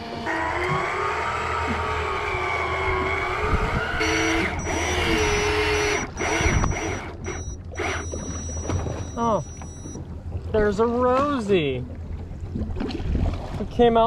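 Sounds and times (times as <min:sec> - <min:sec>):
electric reel motor whine: 0:00.0 - 0:10.0
low engine hum: 0:00.0 - 0:13.6
high beep: 0:04.0 - 0:10.0.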